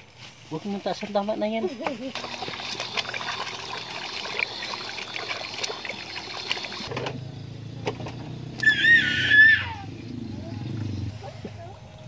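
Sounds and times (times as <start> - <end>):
water sloshing in a plastic basin: 0.6 - 8.3.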